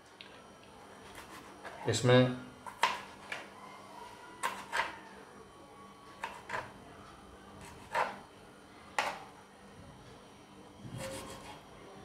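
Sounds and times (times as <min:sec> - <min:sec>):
knife chopping on plastic board: 0:02.7 - 0:03.4, 0:04.4 - 0:05.0, 0:06.2 - 0:06.7, 0:07.6 - 0:08.2.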